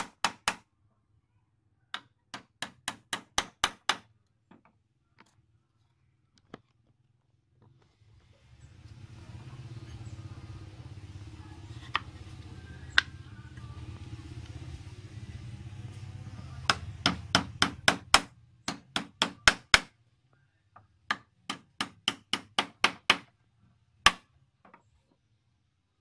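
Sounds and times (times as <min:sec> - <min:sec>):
low steady hum: 0:07.9 - 0:18.8.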